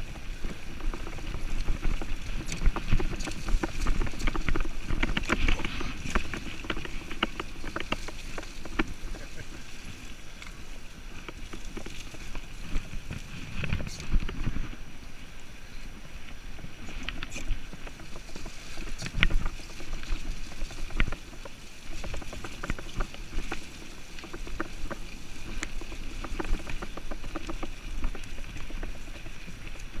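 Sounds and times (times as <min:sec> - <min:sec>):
bike rattling and knocking: 0:00.0 - 0:09.8, 0:11.2 - 0:14.8, 0:17.0 - 0:30.0
bike tyres rumbling on dirt: 0:00.0 - 0:30.0.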